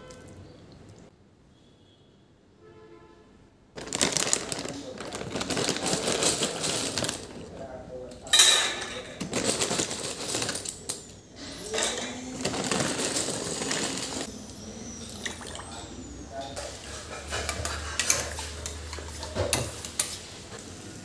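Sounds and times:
dry pasta rattling: 3.8 - 7.6, 9.2 - 11.0, 11.7 - 14.3
plastic packet crinkling: 3.8 - 7.6, 9.2 - 11.0, 11.6 - 14.3.

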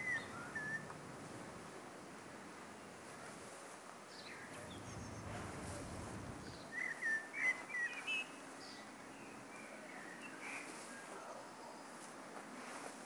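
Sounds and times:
songbird chirping: 0.0 - 1.0, 4.1 - 12.1
faint low rumble: 4.2 - 6.7.

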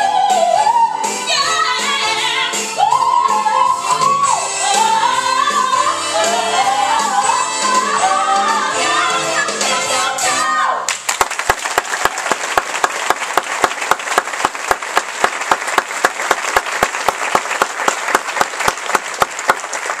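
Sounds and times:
audience applauding: 10.9 - 20.0
sharp nearby claps: 10.9 - 20.0.

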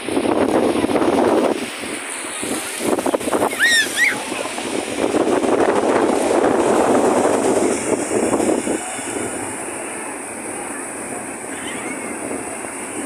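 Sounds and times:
sea surf breaking on beach: 0.0 - 13.0
wind on microphone: 0.0 - 13.0
short high-pitched cries: 3.5 - 4.2.

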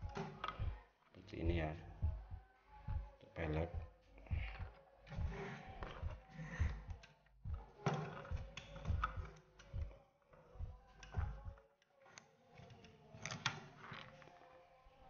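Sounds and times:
plastic parts clicking and tapping: 0.0 - 0.7, 7.8 - 9.8, 12.2 - 14.3.

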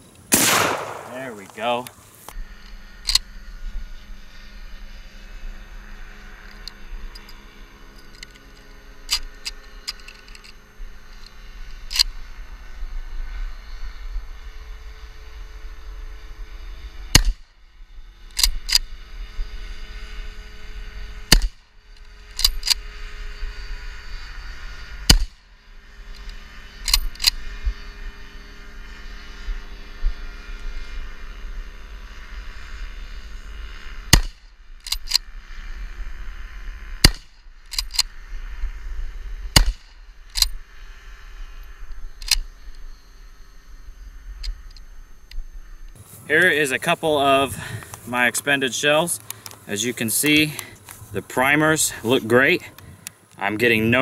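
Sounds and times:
rifle shots: 0.3 - 1.8, 17.1 - 17.4, 25.1 - 25.4, 34.1 - 34.5, 37.0 - 37.3, 39.5 - 40.5
rifle bolt metallic clicks: 3.0 - 3.2, 9.1 - 10.6, 18.3 - 18.9, 21.3 - 22.8, 26.2 - 27.4, 34.1 - 35.2, 37.0 - 38.1, 39.6 - 40.6, 42.2 - 42.5
light handling clicks: 49.2 - 51.0.

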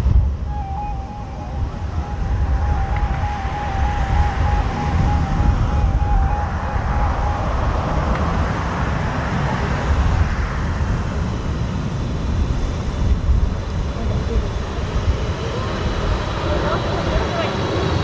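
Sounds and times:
jet aircraft rush: 0.0 - 18.0
wind gusting on microphone: 0.0 - 18.0
faint warbling tone: 0.4 - 8.5.

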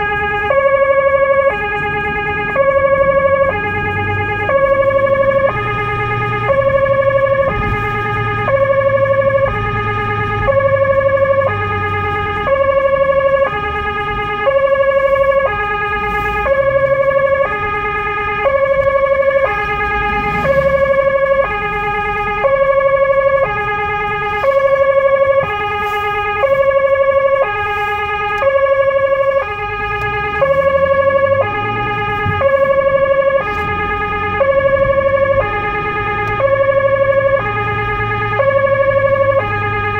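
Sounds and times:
two-tone siren: 0.0 - 39.9.

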